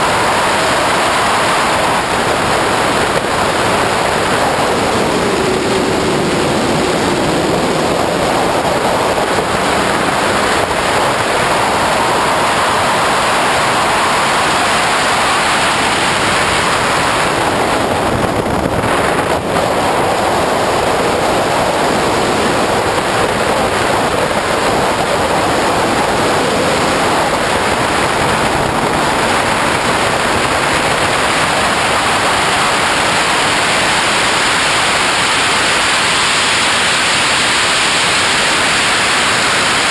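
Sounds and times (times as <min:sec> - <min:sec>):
wind and road noise: 0:00.0 - 0:39.9.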